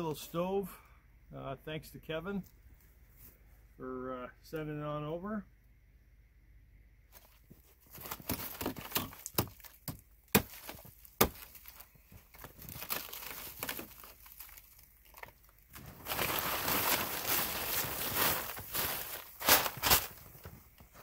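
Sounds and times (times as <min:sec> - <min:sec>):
plastic tarp crinkling: 0:07.1 - 0:21.0
tarp snapping: 0:07.9 - 0:20.4.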